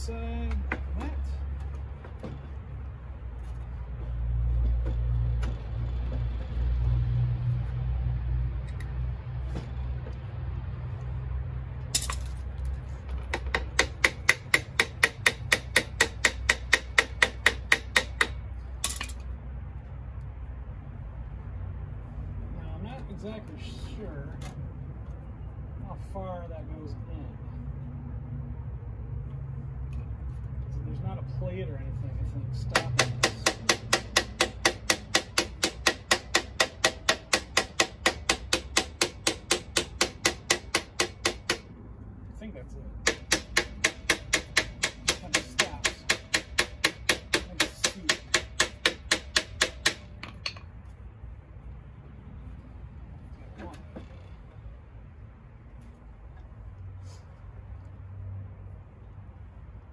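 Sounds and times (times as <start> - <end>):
hammer tapping on steel: 13.3 - 19.2, 32.6 - 41.7, 43.0 - 50.7.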